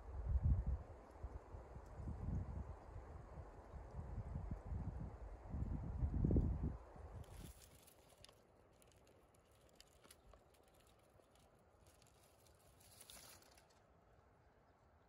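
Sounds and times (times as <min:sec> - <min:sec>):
faint outdoor hiss: 0:00.0 - 0:15.0.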